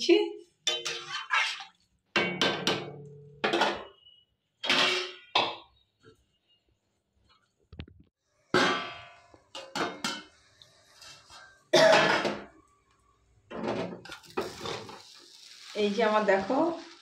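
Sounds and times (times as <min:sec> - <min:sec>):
metal cookware clanging: 0:00.6 - 0:05.8, 0:08.5 - 0:12.6, 0:13.5 - 0:15.2
metal spatula scraping rice: 0:00.7 - 0:01.8, 0:14.1 - 0:15.7.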